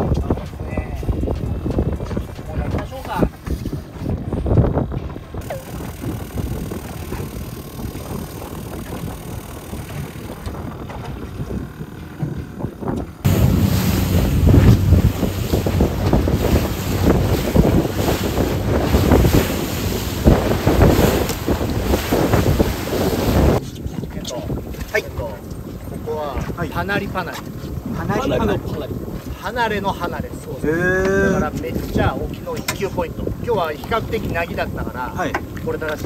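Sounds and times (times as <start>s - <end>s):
boat engine rumble: 0.0s - 36.0s
wind buffeting microphone: 0.0s - 36.0s
water rushing and splashing: 5.4s - 10.5s, 13.2s - 23.6s.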